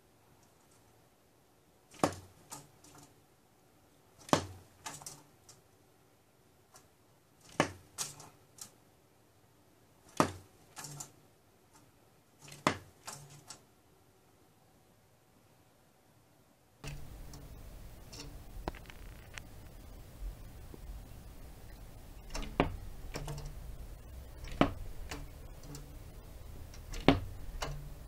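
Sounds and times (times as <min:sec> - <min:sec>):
woodpecker knocking on metal grille: 0:16.8 - 0:28.0.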